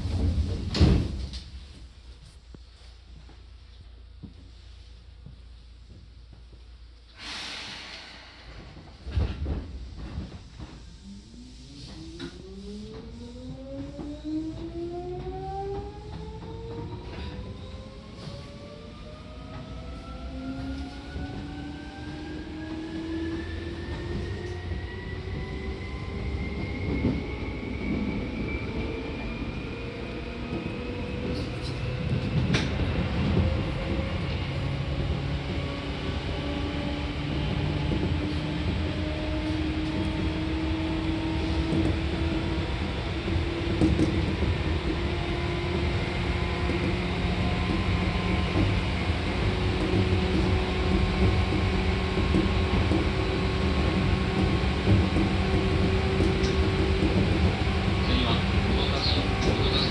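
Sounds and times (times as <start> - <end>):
wheels rumbling on rails: 7.7 - 59.9.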